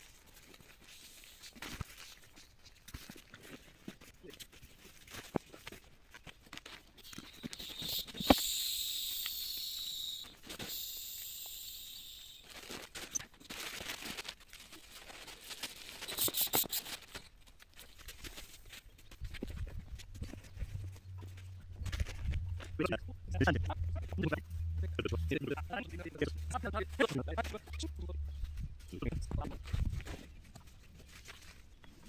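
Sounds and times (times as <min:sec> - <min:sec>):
air hissing out of sleeping pad: 0:07.3 - 0:12.6, 0:16.0 - 0:17.0.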